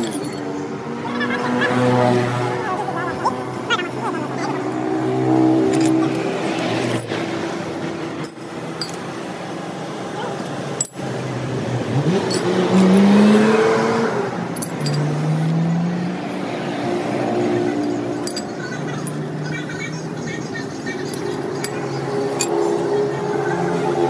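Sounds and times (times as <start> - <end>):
light metal clinks: 0.0 - 0.5, 5.7 - 6.2, 8.2 - 9.0, 12.2 - 12.9, 14.5 - 15.1, 17.8 - 19.3
street traffic: 0.0 - 24.0
vehicle engine revving: 1.2 - 8.3, 11.0 - 20.4.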